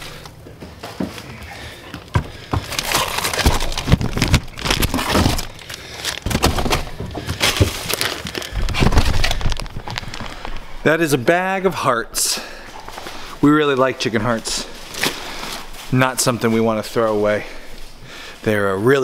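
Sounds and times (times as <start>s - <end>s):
plastic bags crinkling: 1.2s - 10.8s, 12.6s - 18.0s.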